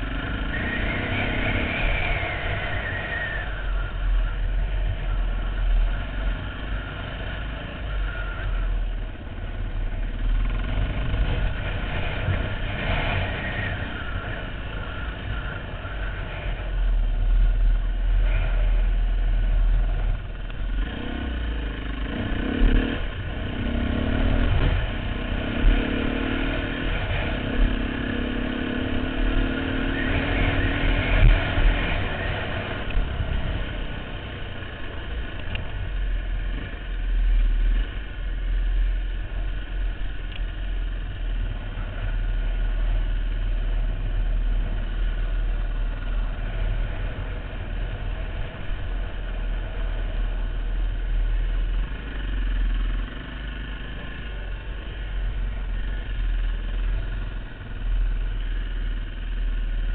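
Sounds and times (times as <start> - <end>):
dirt bike engine revving: 20.8 - 34.2.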